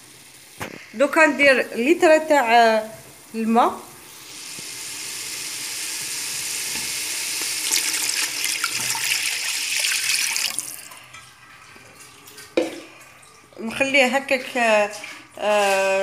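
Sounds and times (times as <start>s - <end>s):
water pouring into pot: 4.0s - 13.6s.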